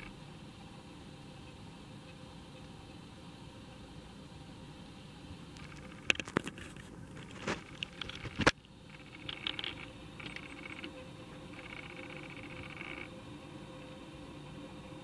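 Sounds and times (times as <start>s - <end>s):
faint high-pitched sounds: 8.8s - 15.0s.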